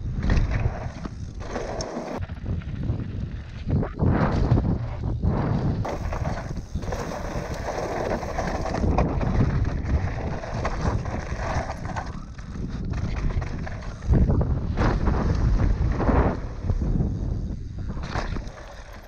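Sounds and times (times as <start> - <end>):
wind noise on microphone: 0.0 - 19.0
bike knocks and rattles: 3.8 - 19.0
tyres crunching over loose stones: 5.8 - 15.5.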